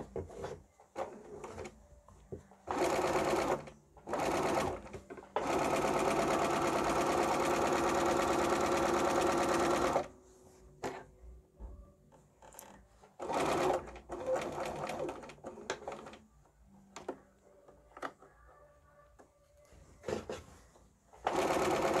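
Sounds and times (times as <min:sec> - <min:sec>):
sewing machine stitching: 0:02.6 - 0:10.1, 0:12.5 - 0:16.2, 0:21.2 - 0:22.0.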